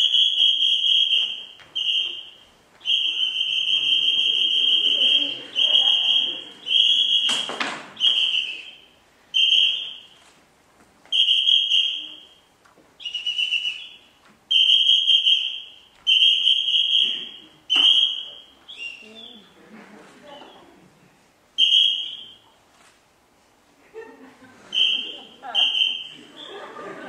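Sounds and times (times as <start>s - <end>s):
whistle blasts: 0.0s - 10.2s, 11.1s - 19.4s, 21.6s - 22.6s, 24.7s - 26.7s.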